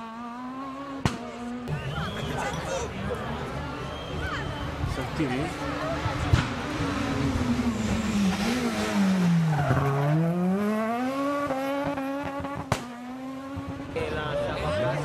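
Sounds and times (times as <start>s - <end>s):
rally car engine revving: 0.0s - 2.3s, 5.0s - 15.0s
sharp crack: 1.0s - 1.3s, 12.7s - 13.0s.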